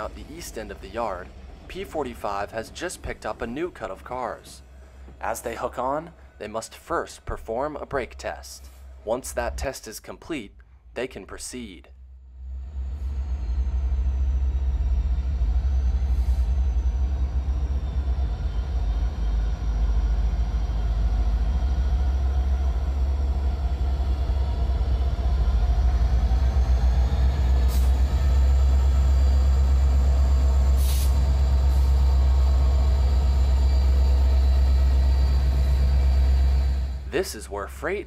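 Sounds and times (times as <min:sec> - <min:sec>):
diesel locomotive engine rumble: 0:00.0 - 0:38.0
faint high wheel squeal: 0:27.7 - 0:37.0.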